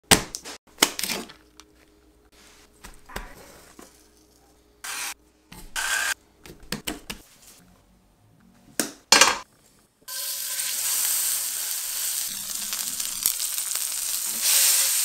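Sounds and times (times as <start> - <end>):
seasoning hissing bursts: 10.1 - 15.0.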